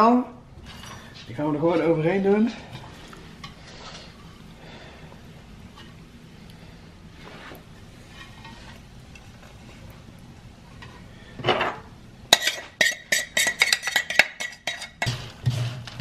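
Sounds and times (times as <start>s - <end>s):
metal utensil scraping saucepan: 8.0s - 9.9s, 10.7s - 16.0s.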